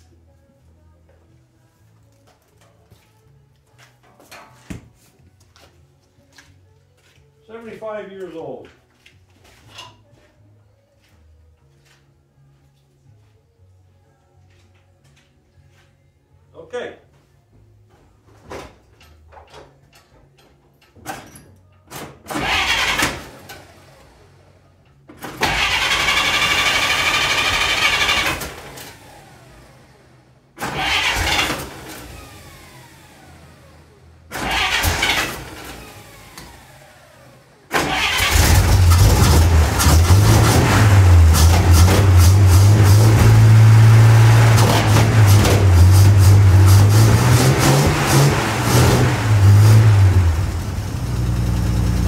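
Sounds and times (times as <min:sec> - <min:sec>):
engine cranking on starter: 0:22.3 - 0:24.0, 0:25.2 - 0:29.6, 0:30.6 - 0:33.6, 0:34.3 - 0:52.0.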